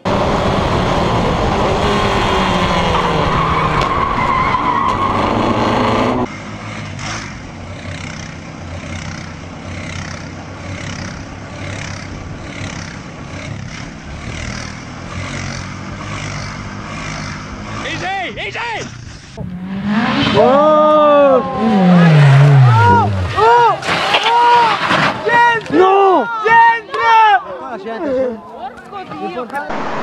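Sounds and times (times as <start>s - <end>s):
quad bike engine running: 0.0s - 3.5s, 5.7s - 19.7s, 20.3s - 23.7s
race car engine at high revs: 0.0s - 18.2s, 18.8s - 23.5s, 29.7s - 30.0s.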